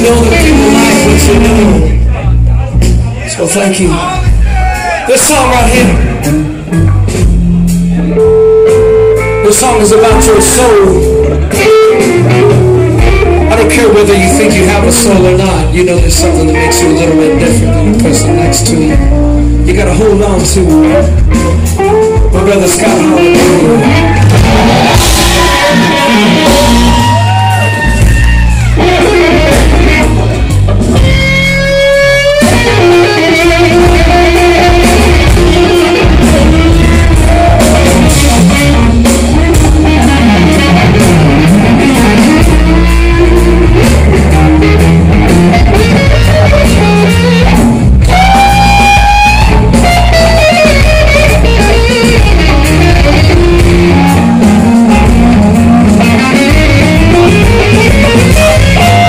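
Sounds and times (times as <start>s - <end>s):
electric guitar playing bluesy lines: 0.0s - 59.0s
heavy bass: 0.0s - 59.0s.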